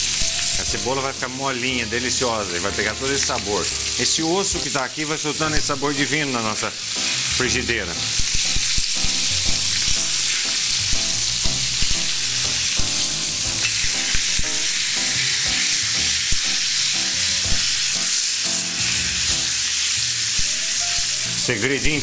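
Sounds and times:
steak sizzling in a pan: 0.0s - 22.0s
metal tongs clicking on pan: 13.6s - 14.6s.

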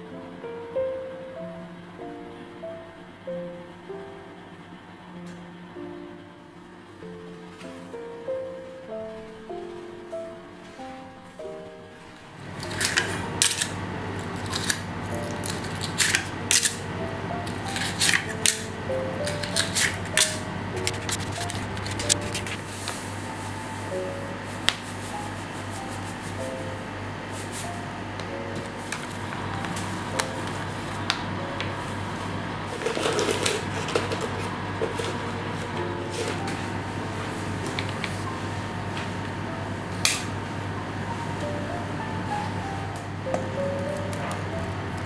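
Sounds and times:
paper liners crinkling: 12.4s - 23.9s, 32.7s - 35.2s
plastic bags crinkling: 12.5s - 16.8s, 32.7s - 34.4s.

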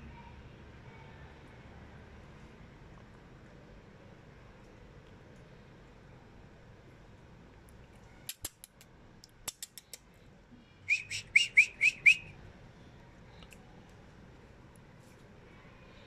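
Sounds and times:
sharp clicks: 8.3s - 10.1s.

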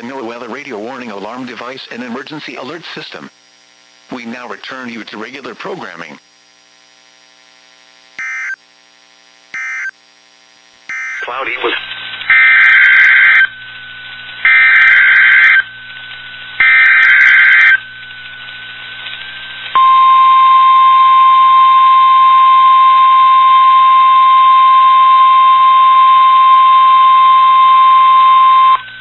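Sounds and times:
steady warning alarm tone: 8.2s - 8.6s, 9.6s - 9.9s, 10.9s - 11.3s, 12.3s - 15.9s, 16.5s - 18.9s, 19.7s - 29.0s
harsh data screech bursts: 10.9s - 18.6s.

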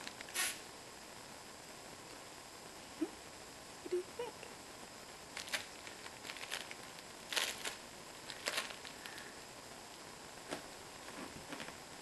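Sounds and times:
crinkle toy rustling: 5.3s - 9.4s.

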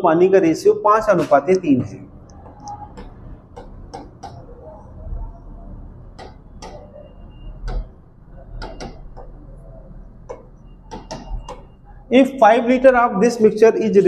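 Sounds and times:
pen tapping on whiteboard glass: 2.4s - 4.6s, 6.1s - 9.6s, 10.2s - 11.9s.

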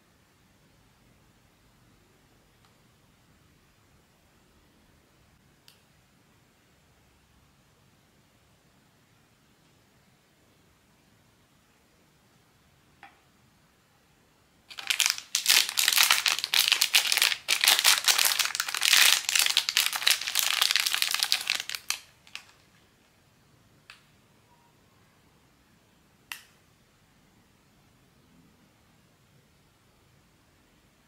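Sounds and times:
plastic packaging crinkling: 14.7s - 22.8s.

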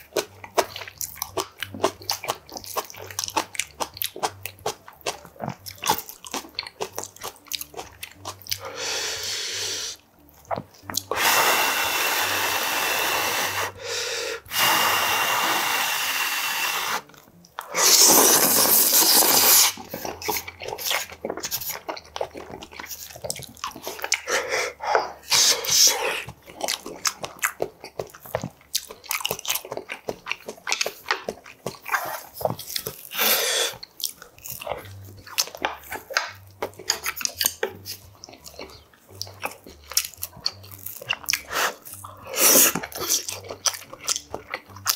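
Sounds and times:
wet chewing and smacking: 0.0s - 8.8s, 10.0s - 11.3s, 16.9s - 44.9s
breath rushes over hot food: 8.6s - 10.0s, 11.1s - 20.1s, 23.8s - 26.3s, 33.0s - 33.8s, 41.4s - 43.2s.

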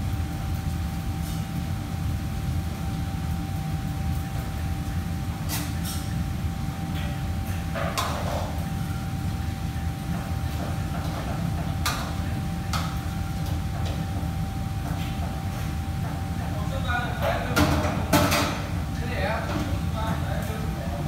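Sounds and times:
faint constant hum: 0.0s - 21.0s
kitchen fans rumbling: 0.0s - 21.0s
utensils and dishes clattering: 17.2s - 18.8s.

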